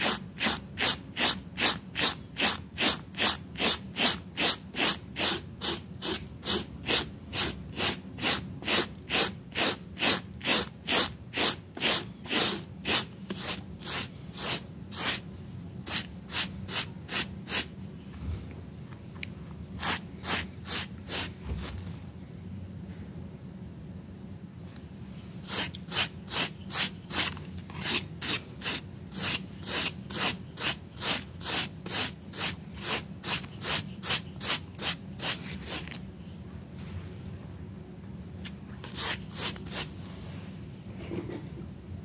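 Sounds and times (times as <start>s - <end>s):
brush scrubbing wet rug: 0.0s - 15.2s.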